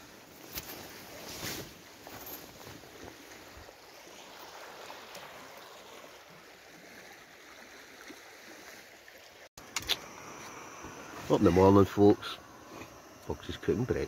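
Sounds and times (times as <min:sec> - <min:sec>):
river water rushing: 0:01.8 - 0:10.2.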